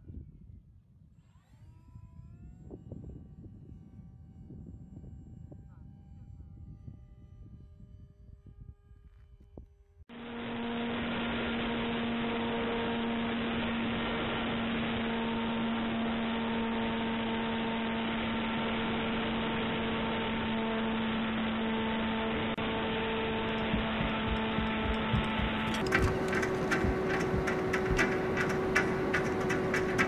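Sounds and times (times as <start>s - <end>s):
model plane propeller and air rush: 0.0s - 30.0s
steady hum: 10.1s - 30.0s.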